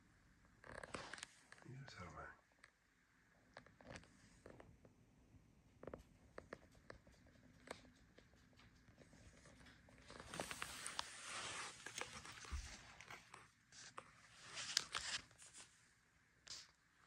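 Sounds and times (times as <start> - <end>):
faint clothing rustling: 8.6 - 15.7.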